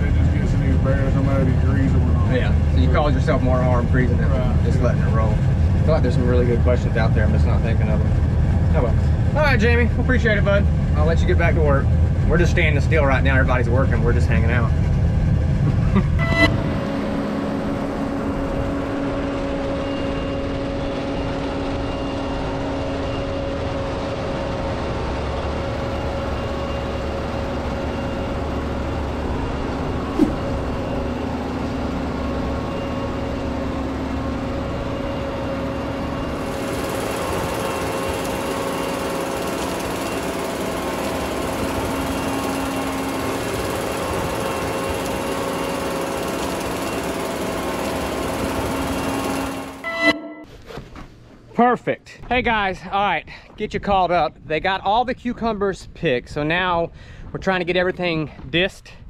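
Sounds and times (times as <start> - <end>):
machine engine humming: 0.0 - 51.5.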